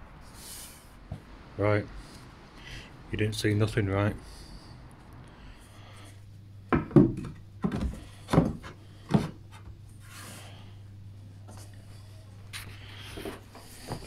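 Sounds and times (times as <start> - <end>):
faint steady hum: 0.0 - 14.0
hollow wooden knocks: 6.7 - 9.7.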